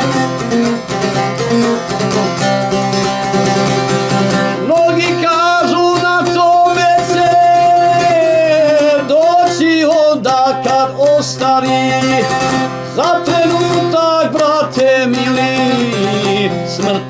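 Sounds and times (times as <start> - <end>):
strummed long-necked lute: 0.0 - 17.0
man singing slow song: 4.6 - 17.0.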